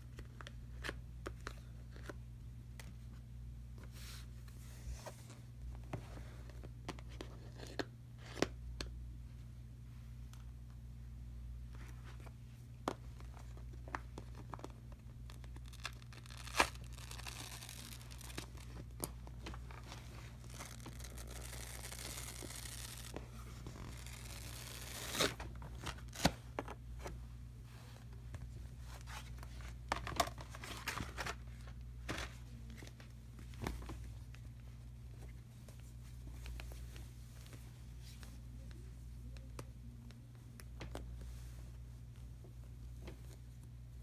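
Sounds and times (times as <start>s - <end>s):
steady low hum: 0.0s - 44.0s
cardboard tearing and rustling: 15.6s - 18.8s, 19.8s - 26.4s.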